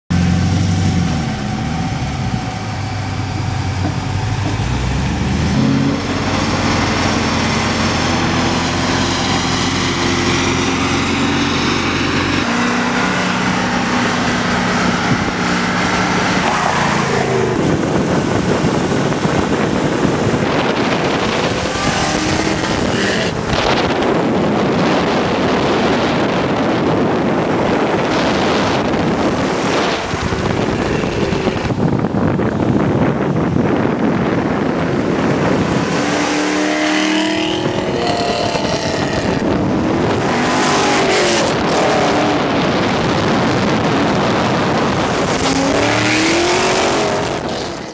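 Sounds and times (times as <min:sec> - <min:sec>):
car engine exhaust note: 0:00.1 - 0:47.9
road and wind noise: 0:00.1 - 0:47.9.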